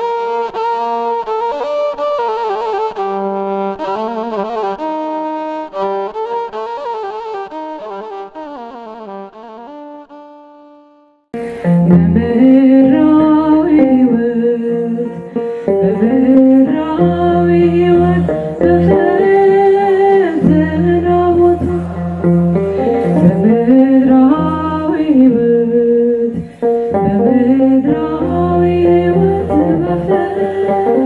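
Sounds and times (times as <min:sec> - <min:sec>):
instrumental accompaniment: 0:00.0 - 0:31.0
woman singing a hymn: 0:12.0 - 0:15.2, 0:15.8 - 0:22.1, 0:22.8 - 0:26.4, 0:27.0 - 0:31.0.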